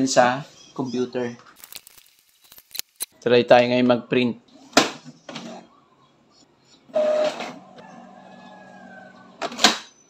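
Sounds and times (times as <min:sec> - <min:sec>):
printer motor hum with whine: 0:06.9 - 0:09.4.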